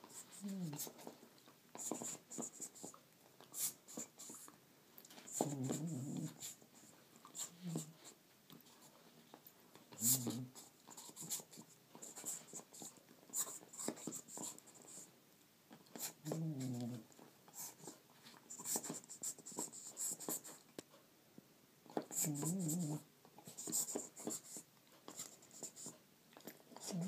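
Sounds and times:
dog making low vocal noises: 0:00.2 - 0:01.2, 0:05.2 - 0:06.6, 0:07.3 - 0:08.1, 0:09.9 - 0:11.7, 0:15.9 - 0:17.9, 0:22.0 - 0:23.1, 0:26.4 - 0:27.0.

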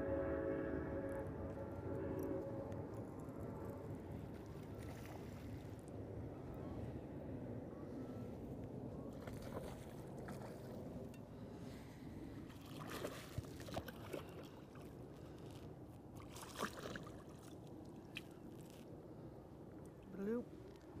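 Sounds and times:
water sloshing against boat hull: 0:09.1 - 0:11.3, 0:12.5 - 0:15.6, 0:16.2 - 0:18.8.

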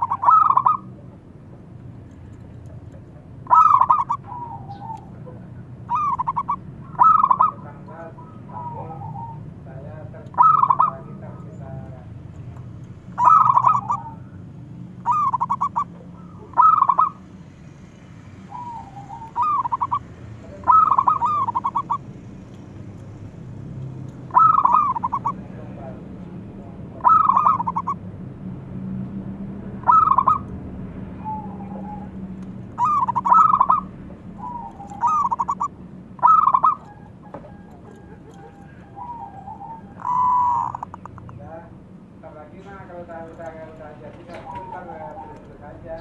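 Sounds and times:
dove cooing: 0:00.0 - 0:12.1, 0:13.1 - 0:17.3, 0:18.4 - 0:22.1, 0:24.0 - 0:28.1, 0:29.8 - 0:30.5, 0:31.1 - 0:41.4, 0:42.9 - 0:46.0.

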